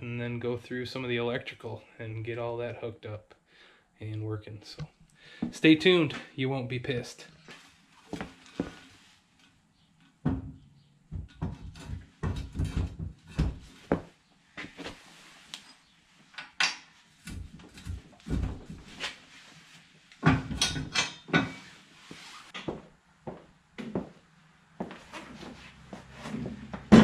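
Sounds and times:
metal clunks and rattles: 20.2 - 21.6, 26.6 - 27.0.

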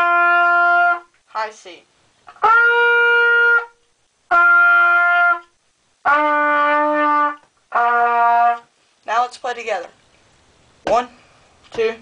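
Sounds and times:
trumpet playing held notes: 0.0 - 1.1, 2.3 - 8.7.

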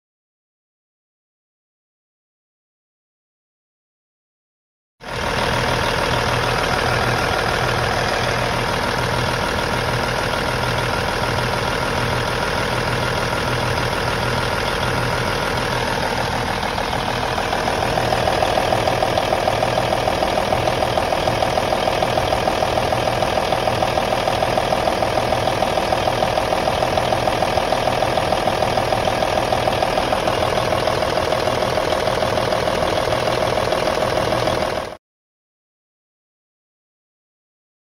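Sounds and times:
diesel truck engine idling: 5.0 - 35.0.

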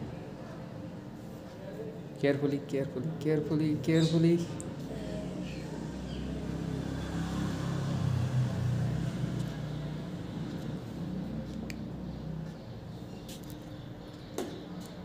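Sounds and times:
vehicle engine humming: 4.8 - 15.0.

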